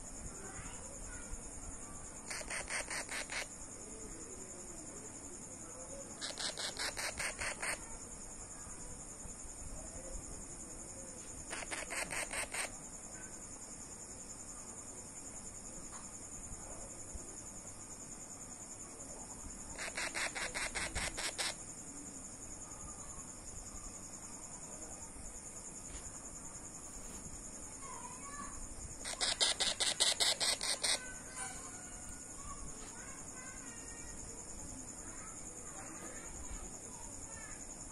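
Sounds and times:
crickets trilling: 0.0 - 37.9
rapid even ticking: 2.2 - 3.6, 11.5 - 12.8, 19.7 - 21.6, 29.0 - 31.2.

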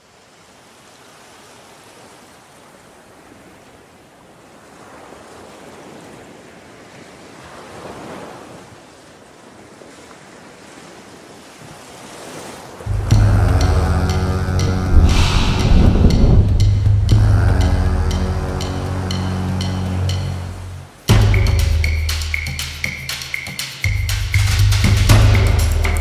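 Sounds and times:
ocean surf on beach: 0.0 - 26.0
music with deep bass: 12.9 - 26.0.

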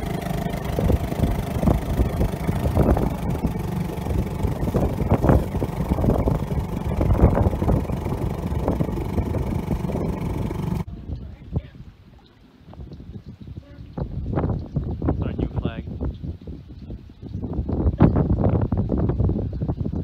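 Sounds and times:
outboard motor running: 0.0 - 10.9
water splashing against hull: 0.0 - 10.9.

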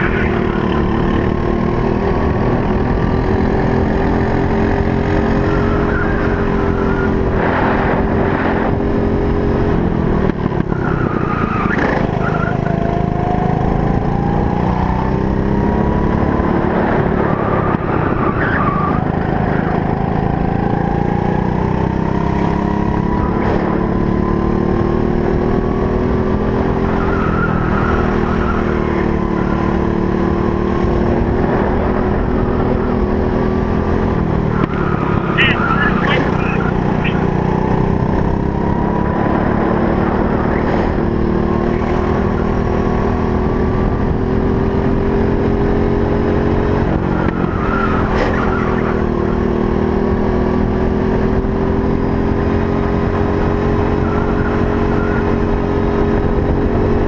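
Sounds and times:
kart engine racing: 0.0 - 57.0.

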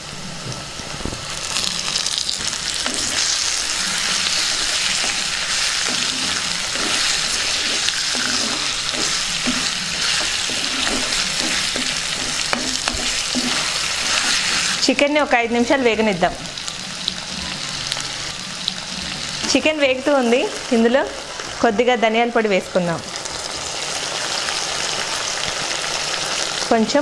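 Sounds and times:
chicken sizzling in hot oil: 0.0 - 27.0
spatula scraping a clay pot: 2.8 - 14.8.

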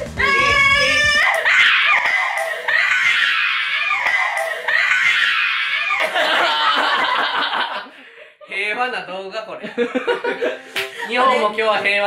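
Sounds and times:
person screaming: 0.2 - 6.2.

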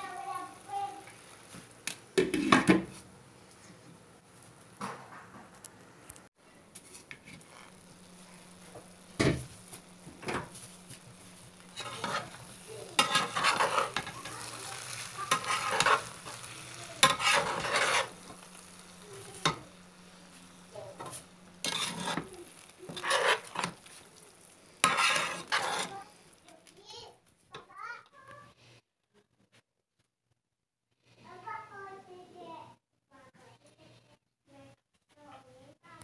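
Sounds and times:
spatula scraping rice in pan: 6.8 - 26.1.

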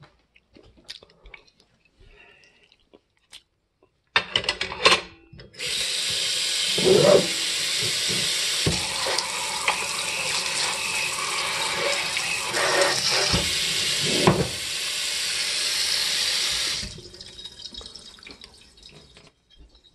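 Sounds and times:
tap water splashing onto dishes: 6.0 - 14.6, 15.8 - 19.9
faint water drips: 16.8 - 19.9.

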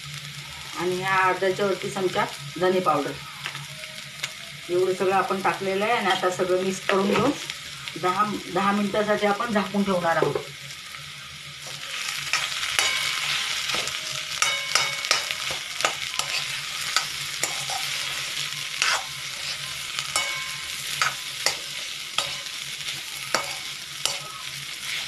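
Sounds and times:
filling sizzling in a pan: 0.0 - 25.0
metal spoon scraping a pan: 11.6 - 25.0.

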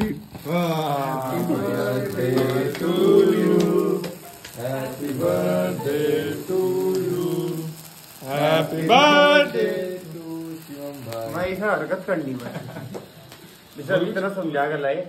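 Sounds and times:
voices chanting: 0.5 - 11.3.

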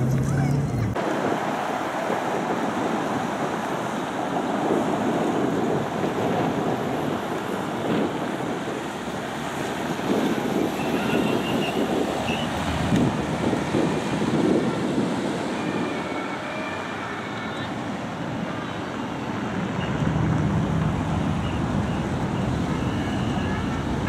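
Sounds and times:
wind buffeting microphone: 0.0 - 16.4
city traffic roar: 0.0 - 24.0
vehicles driving on wet road: 0.0 - 24.0.

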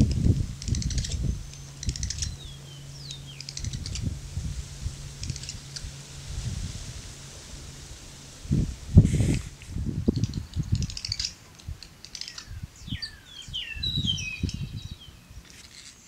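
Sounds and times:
swallows clicking calls: 0.0 - 4.1, 5.2 - 5.9, 10.1 - 15.9
low rumbling: 0.0 - 15.5
falling whistled bird notes: 12.2 - 15.3.

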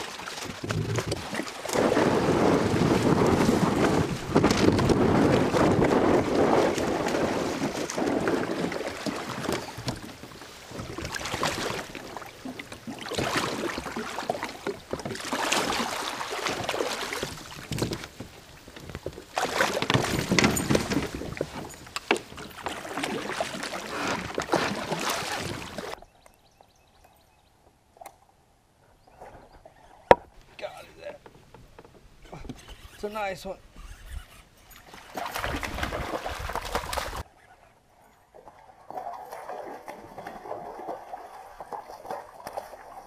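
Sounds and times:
water rushing around kayak hull: 0.0 - 26.0, 34.6 - 37.3, 38.3 - 43.0.

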